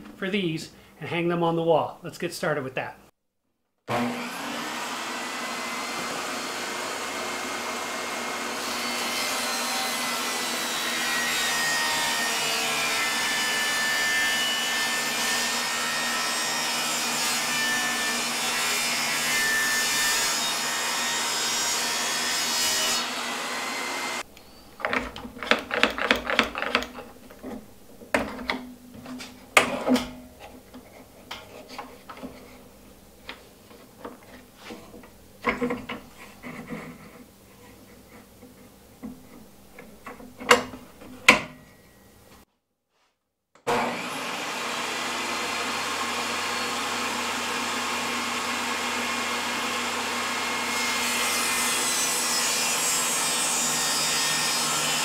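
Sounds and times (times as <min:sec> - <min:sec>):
table saw motor whine: 0:03.9 - 0:24.2, 0:43.7 - 0:51.6
saw cutting plywood: 0:03.9 - 0:24.3, 0:34.0 - 0:41.5, 0:43.7 - 0:55.0
clicks and knocks: 0:24.8 - 0:32.3.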